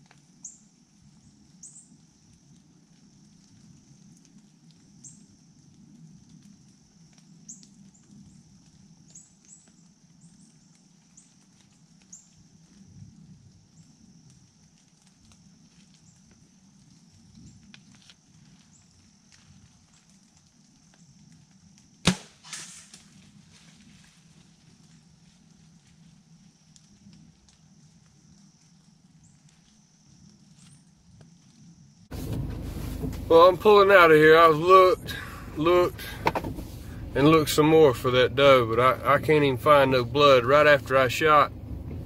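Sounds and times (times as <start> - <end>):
faint ticks: 0.0 - 21.9
faint low rumble: 31.1 - 42.0.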